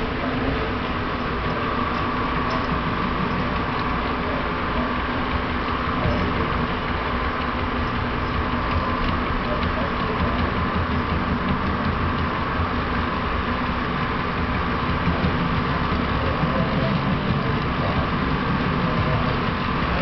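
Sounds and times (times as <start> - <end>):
model locomotive motor: 0.0 - 20.0
model train wheels rolling on rail: 0.0 - 20.0.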